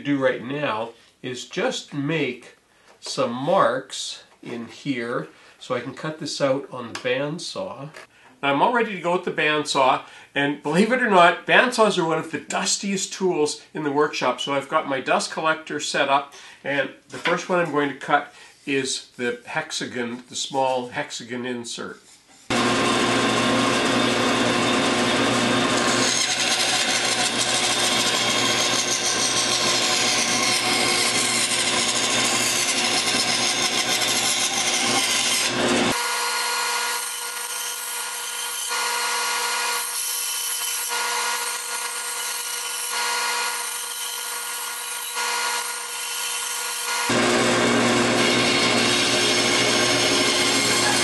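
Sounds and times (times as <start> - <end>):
dust collector running: 22.5 - 36.0, 47.1 - 51.0
bandsaw cutting wood: 22.5 - 51.0.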